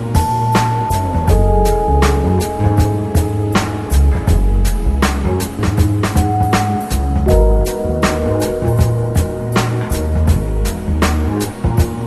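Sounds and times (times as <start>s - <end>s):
background music with drum beat: 0.0s - 12.0s
bass line: 0.0s - 12.0s.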